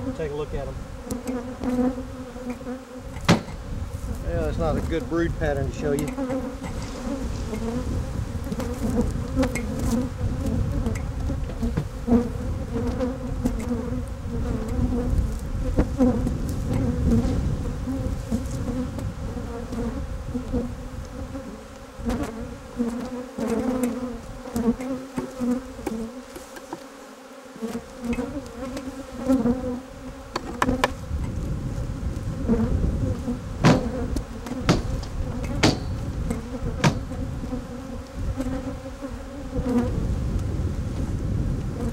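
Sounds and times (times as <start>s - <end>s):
bees buzzing: 0.0s - 41.9s
hive tool knocking and scraping: 1.0s - 7.8s, 8.4s - 17.4s, 22.1s - 27.0s, 27.6s - 31.4s, 32.5s - 38.7s.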